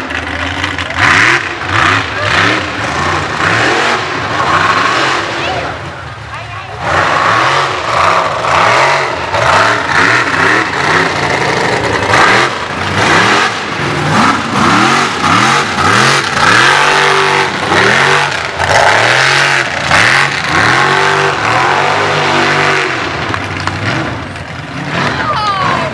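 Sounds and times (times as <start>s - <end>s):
buggy engine revving hard: 0.0s - 25.9s.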